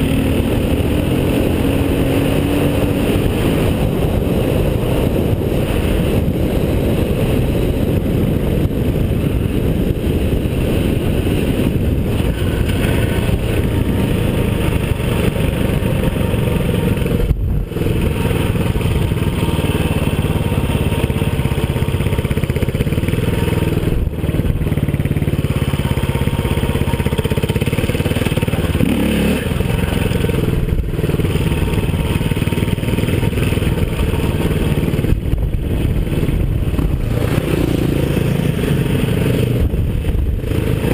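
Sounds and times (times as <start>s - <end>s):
motorcycle engine running: 0.0s - 40.9s
wind rushing over microphone: 0.0s - 40.9s.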